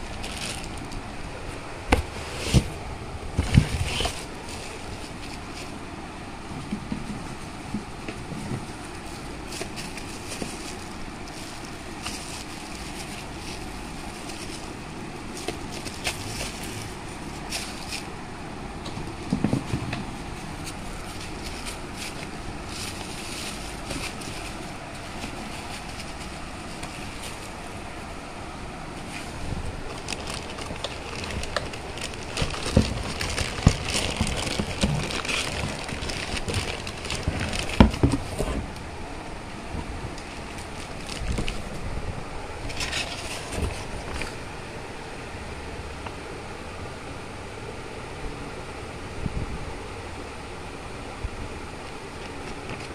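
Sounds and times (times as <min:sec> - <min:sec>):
plastic wrapping crinkling: 0:00.0 - 0:01.2, 0:03.4 - 0:05.8, 0:07.6 - 0:18.2, 0:19.1 - 0:27.7, 0:29.0 - 0:38.8, 0:40.2 - 0:41.7.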